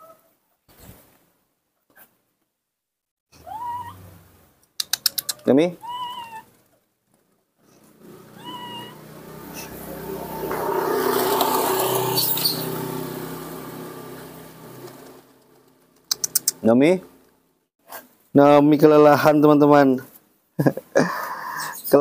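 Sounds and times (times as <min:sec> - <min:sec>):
baby monkey mewing cries: 0:03.4 - 0:04.0, 0:05.2 - 0:06.5, 0:08.3 - 0:09.0
passing vehicle: 0:07.8 - 0:16.1.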